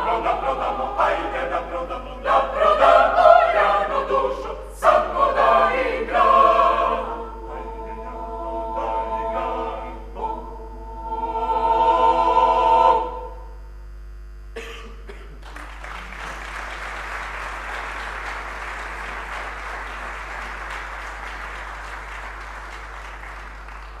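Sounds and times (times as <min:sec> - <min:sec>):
choir singing a cappella: 0:00.0 - 0:13.6
audience applause: 0:15.4 - 0:24.0.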